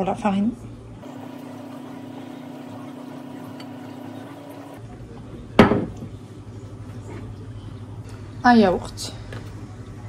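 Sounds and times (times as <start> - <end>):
object set down on worktop: 5.6 - 6.1.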